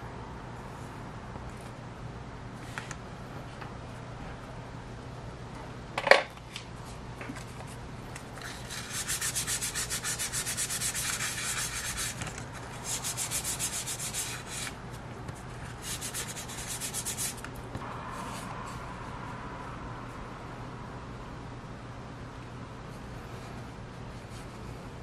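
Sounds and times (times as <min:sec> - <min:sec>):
sandpaper scratching: 0:08.4 - 0:14.8, 0:15.8 - 0:17.4.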